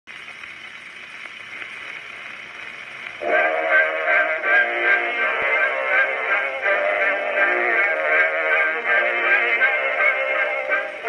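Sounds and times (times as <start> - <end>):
record surface noise hiss: 0.1 - 11.0
recorded music: 2.8 - 11.0.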